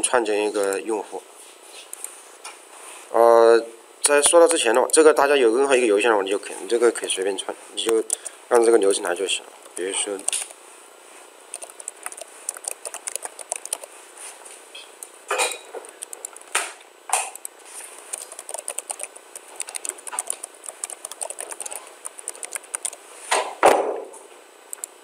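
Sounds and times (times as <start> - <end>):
keyboard typing clicks: 7.8 - 8.3, 9.6 - 10.5, 11.5 - 13.9, 15.8 - 16.5, 17.3 - 23.0, 24.7 - 25.0.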